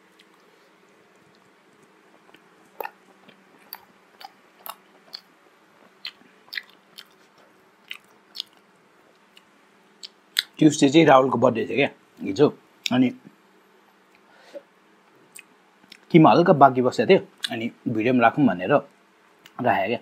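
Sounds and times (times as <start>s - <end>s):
chewing with mouth clicks: 1.1s - 10.6s.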